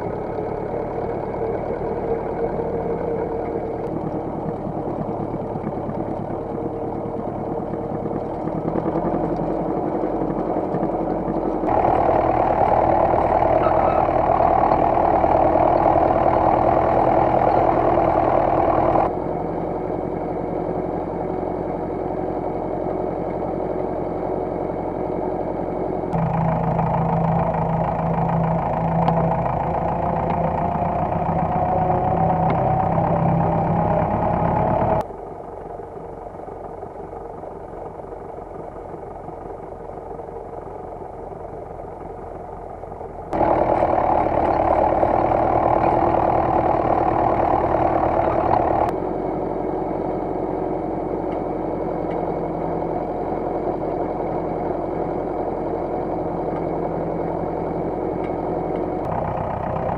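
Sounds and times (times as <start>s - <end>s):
rising whine: 0.0s - 35.2s
tractor engine under load: 0.0s - 59.9s.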